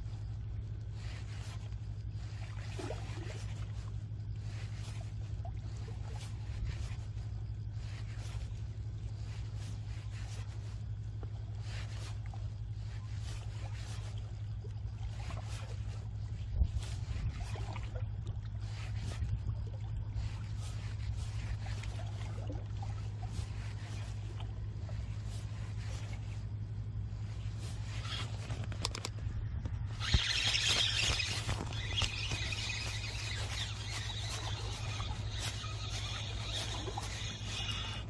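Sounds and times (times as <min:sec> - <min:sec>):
fishing reel whirring: 0:00.0 - 0:17.9, 0:18.5 - 0:19.5, 0:20.2 - 0:26.5, 0:27.1 - 0:38.0
low rumble: 0:16.0 - 0:30.1.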